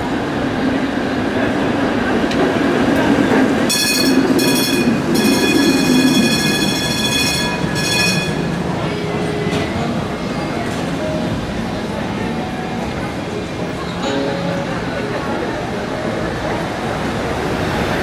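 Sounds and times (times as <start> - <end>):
streetcar running rumble: 0.0 - 18.0
steel wheels squealing on rails: 3.7 - 11.0.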